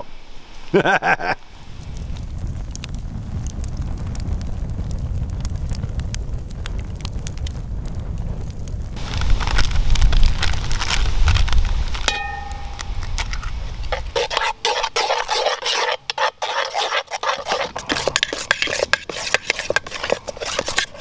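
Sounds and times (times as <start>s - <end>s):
spoon clinking on pot: 12.1s - 12.9s
metal spoon scraping batter: 13.2s - 21.0s.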